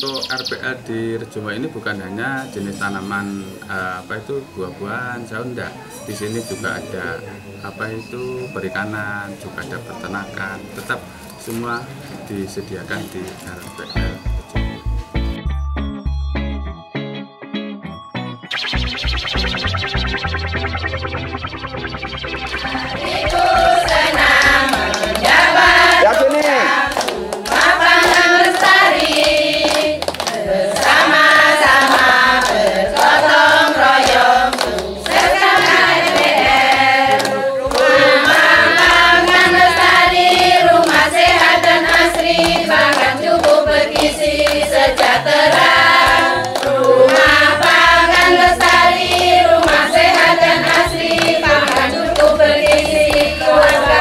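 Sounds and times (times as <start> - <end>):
hands clapping: 22.6 - 54.0
women singing together: 22.6 - 54.0.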